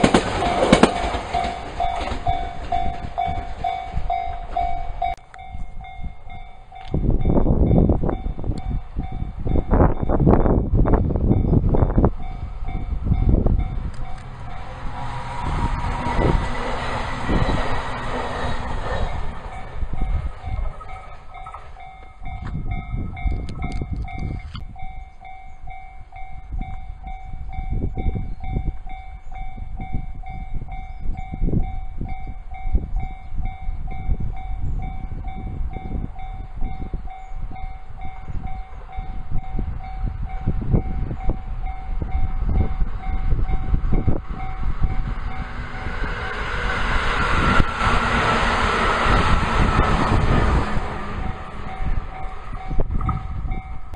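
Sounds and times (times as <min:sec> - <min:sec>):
electric train passing: 0:00.0 - 0:53.9
level-crossing bell ringing: 0:00.4 - 0:10.3, 0:51.2 - 0:53.9.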